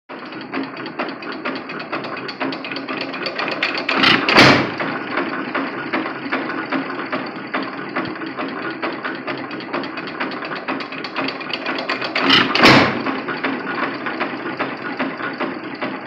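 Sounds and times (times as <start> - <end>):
engine mechanical clicks: 0.1 - 16.0
engine firing bang: 3.8 - 6.0, 12.2 - 13.4.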